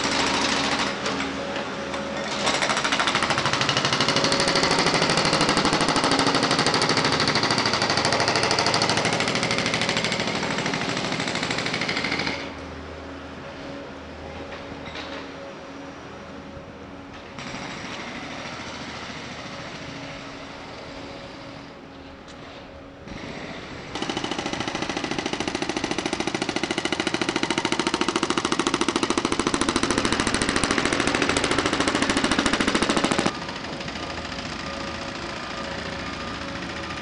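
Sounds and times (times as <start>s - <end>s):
steady machinery noise: 0.0s - 37.0s
pavement breaker hammering: 24.0s - 35.6s.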